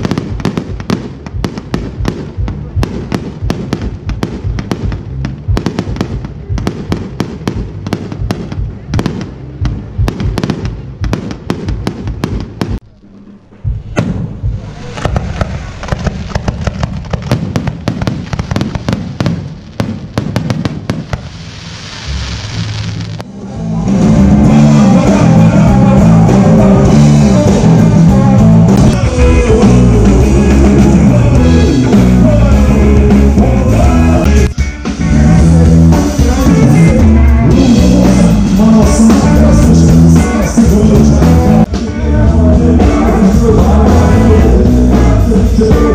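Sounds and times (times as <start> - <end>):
fireworks crackling and banging: 0.0 - 23.3, 24.0 - 34.6
rock band playing loudly: 23.4 - 45.9.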